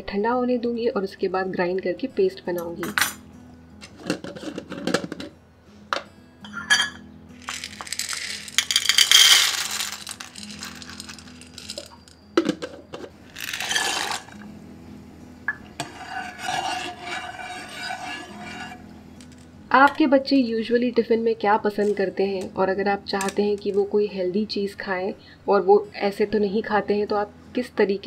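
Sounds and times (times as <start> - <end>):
pasta rattling in metal bowl: 7.4 - 12.1, 13.3 - 14.4.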